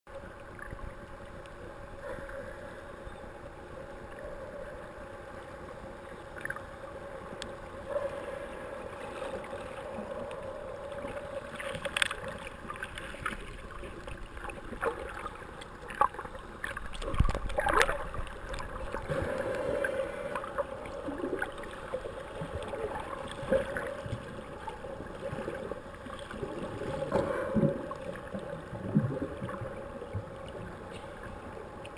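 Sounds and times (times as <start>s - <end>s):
muffled underwater water noise: 0.1s - 31.9s
underwater bubbling: 0.1s - 31.9s.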